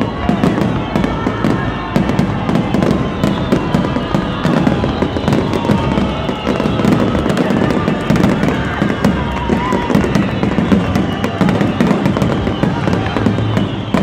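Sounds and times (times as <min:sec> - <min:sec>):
fireworks bangs and crackles: 0:00.0 - 0:14.0.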